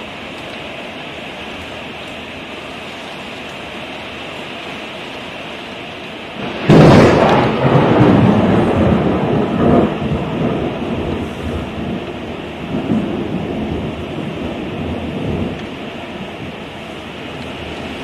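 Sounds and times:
heavy rain: 0.0 - 18.0
thunder crack and rumble: 6.4 - 16.6.

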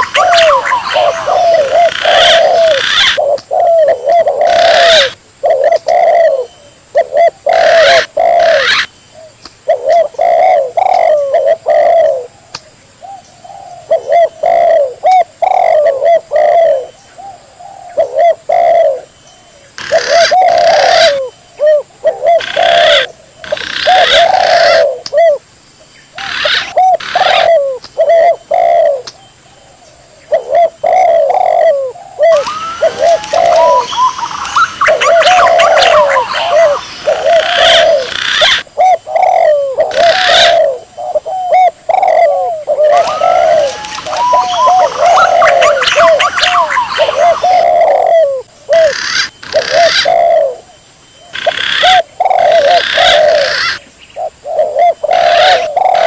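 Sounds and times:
pigeon whistling calls: 0.0 - 5.2, 5.8 - 8.9, 30.4 - 50.6, 51.3 - 56.0
dove cooing: 0.0 - 12.4, 13.0 - 19.1, 19.8 - 25.4, 26.2 - 56.0.

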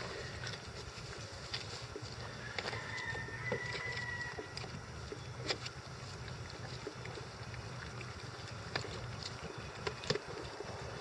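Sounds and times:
low steady rumble: 0.0 - 11.0
small water splashes: 3.6 - 11.0.

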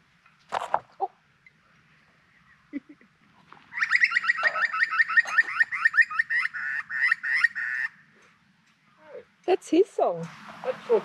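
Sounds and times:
bird calling: 0.5 - 9.3.

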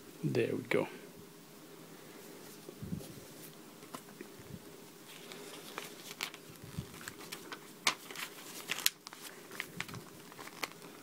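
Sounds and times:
paper booklet rustling: 5.0 - 11.0.

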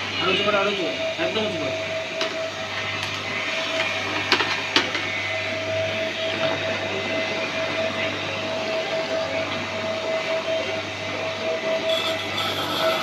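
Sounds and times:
pressure washer motor hum: 0.0 - 13.0.

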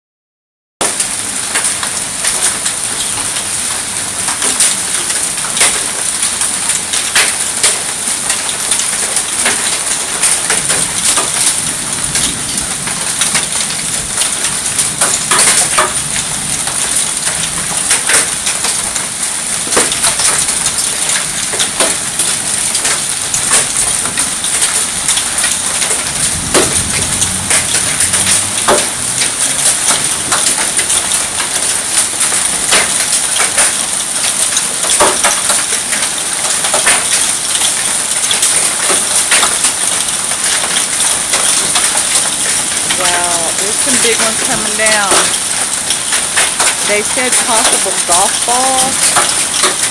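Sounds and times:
hailstones clicking on pavers: 0.8 - 49.9
heavy rain hissing: 0.9 - 49.9.

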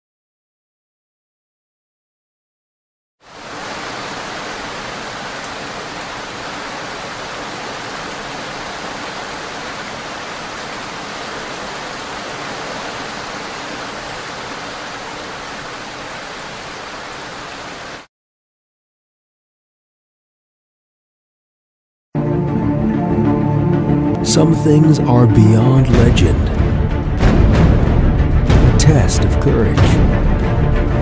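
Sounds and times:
heavy rain hissing: 3.2 - 18.1.

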